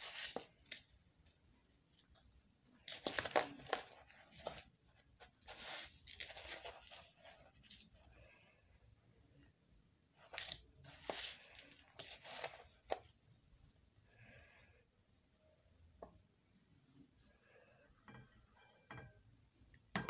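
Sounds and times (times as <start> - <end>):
breadcrumbs rustling and crunching: 0.0 - 1.3, 1.9 - 8.6, 10.1 - 13.4.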